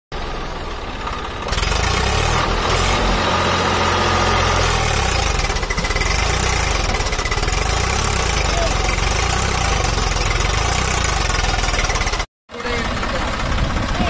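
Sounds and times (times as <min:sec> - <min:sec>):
diesel tractor engine under load: 0:00.1 - 0:14.0.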